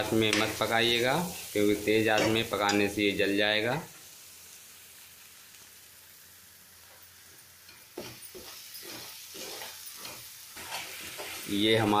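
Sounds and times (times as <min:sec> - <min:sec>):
paste sizzling in oil: 0:00.0 - 0:12.0
metal spoon scraping a pan: 0:07.7 - 0:11.6.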